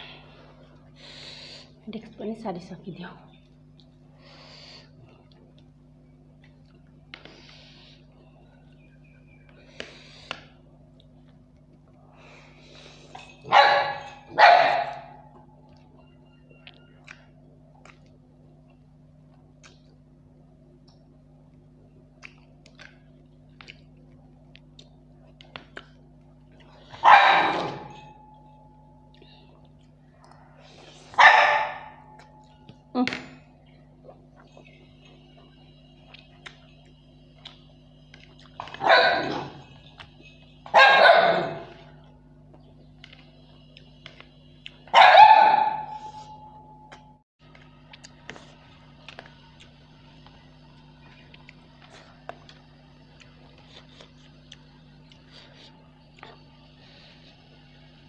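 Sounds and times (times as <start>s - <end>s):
small dog barking: 13.4s - 15.3s, 27.0s - 28.2s, 31.1s - 32.3s, 38.6s - 39.7s, 40.6s - 41.9s, 44.9s - 47.1s
faint eating clicks: 15.7s - 20.1s, 20.8s - 27.0s, 33.7s - 38.9s, 41.7s - 44.9s, 46.9s - 56.8s.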